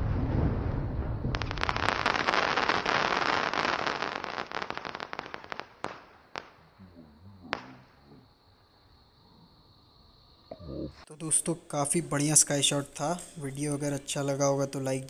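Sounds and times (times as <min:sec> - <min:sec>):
firework crackling pops: 0:00.0 - 0:06.7, 0:07.5 - 0:07.8.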